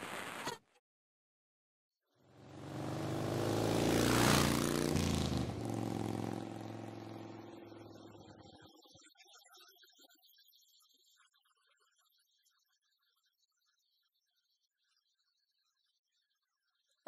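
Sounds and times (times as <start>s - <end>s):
car driving past: 2.4s - 8.4s.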